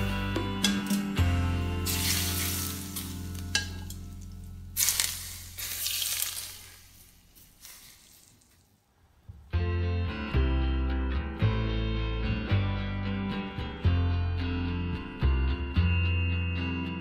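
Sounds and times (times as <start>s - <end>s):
hot oil sizzling: 1.7s - 8.7s.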